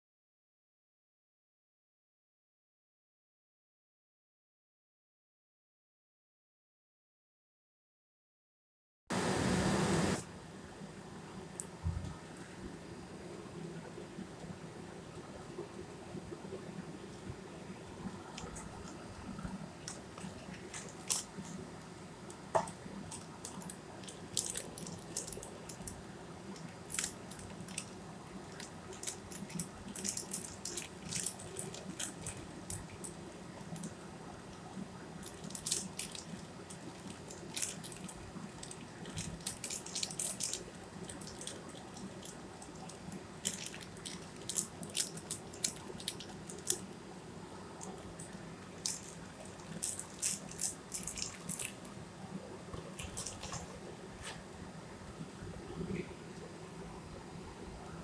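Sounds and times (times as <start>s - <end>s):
steady low hum: 9.1s - 58.0s
foil sachet crackling: 19.8s - 21.5s, 23.1s - 33.9s, 35.1s - 47.0s, 47.8s - 51.9s, 52.8s - 53.8s.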